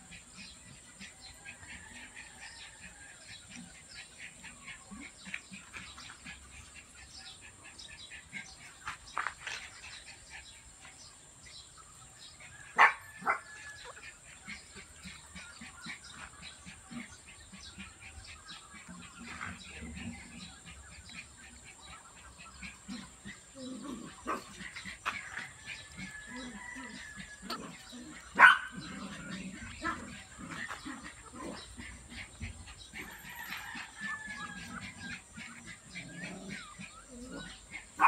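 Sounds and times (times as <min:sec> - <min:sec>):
small birds chirping: 0:00.0 - 0:38.0
puppies whimpering and crying: 0:11.9 - 0:38.0.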